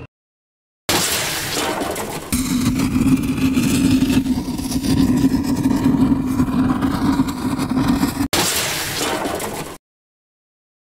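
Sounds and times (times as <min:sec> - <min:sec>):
low hum: 0:02.4 - 0:08.3.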